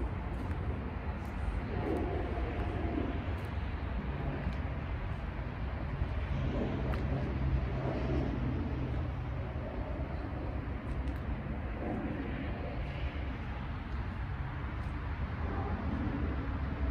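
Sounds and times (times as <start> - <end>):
distant traffic rumble: 0.0 - 16.9
low engine hum: 0.0 - 16.9.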